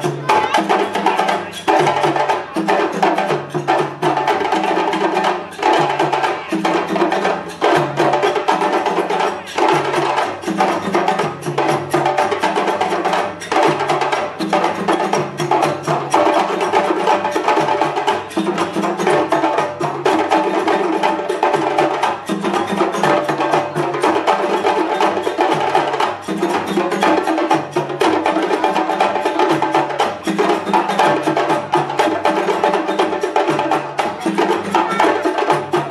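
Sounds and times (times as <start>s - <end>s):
hand drums playing: 0.0s - 35.9s.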